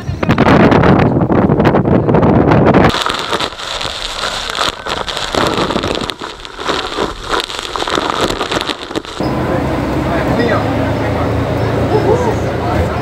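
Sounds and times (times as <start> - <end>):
falling water hiss: 2.9 - 9.2
drops hitting camera: 2.9 - 9.3.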